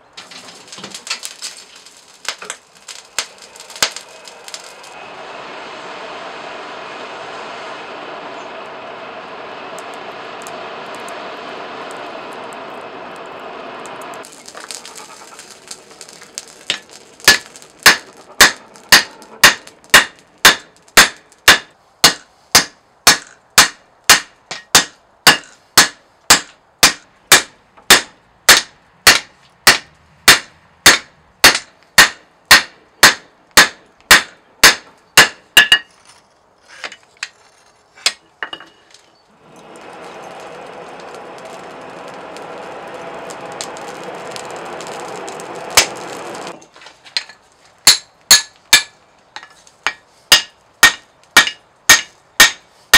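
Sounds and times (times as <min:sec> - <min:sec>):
forge air blower rushing: 0:03.0 - 0:19.5, 0:39.4 - 0:46.6
hammer striking steel on anvil: 0:16.7 - 0:35.9, 0:47.2 - 0:52.6.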